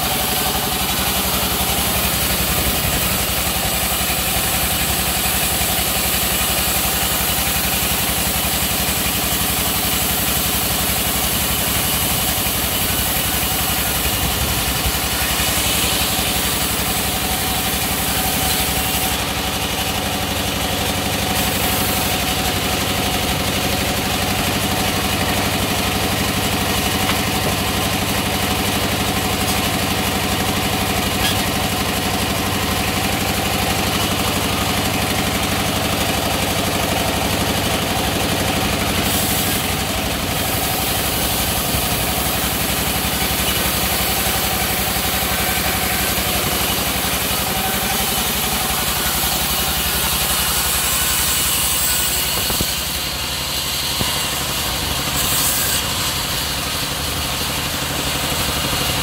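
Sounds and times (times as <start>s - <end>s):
band saw cutting wood: 0.0s - 59.0s.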